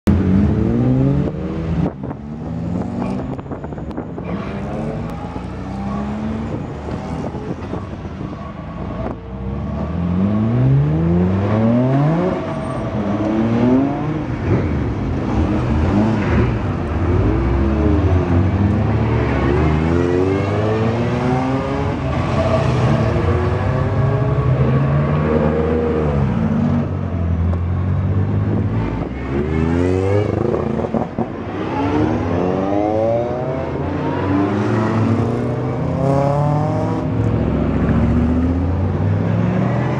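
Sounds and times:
race car engines accelerating: 0:00.1 - 0:39.9.

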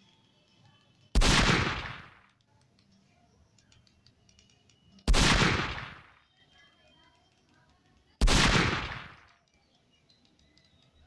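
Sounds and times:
faint clicks: 0:00.0 - 0:05.2, 0:05.8 - 0:11.0
loud gunshot-like bangs: 0:01.2 - 0:02.1, 0:05.1 - 0:06.1, 0:08.2 - 0:09.2.

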